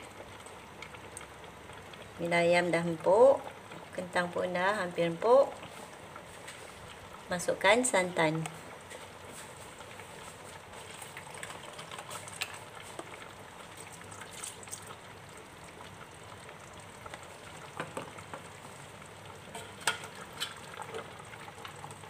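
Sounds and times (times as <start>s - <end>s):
pot sizzling: 0.0s - 22.0s
coconut milk pouring: 10.6s - 19.4s.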